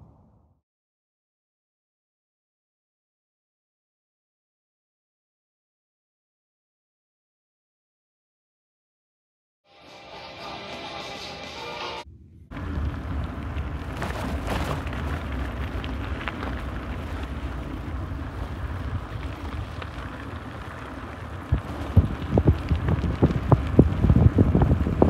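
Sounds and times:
low rumble: 0:12.0 - 0:25.0
wind buffeting microphone: 0:12.6 - 0:25.0.

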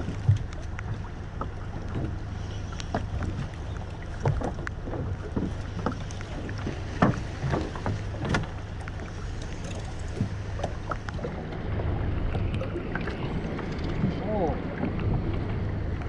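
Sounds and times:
boat engine humming: 0:00.0 - 0:16.0
knocks and clatter on board: 0:04.2 - 0:08.6.

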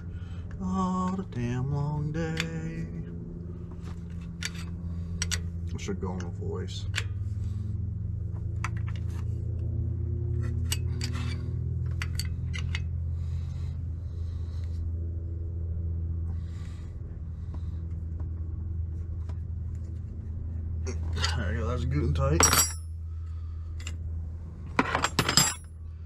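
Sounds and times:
steady low hum: 0:00.0 - 0:26.0
wrench clinking on metal: 0:10.6 - 0:12.9, 0:22.2 - 0:23.0, 0:24.8 - 0:25.7.

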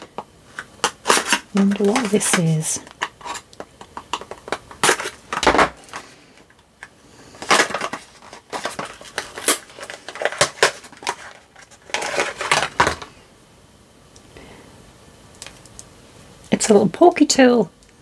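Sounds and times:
card scraping and crinkling: 0:00.5 - 0:06.5, 0:07.3 - 0:13.1.

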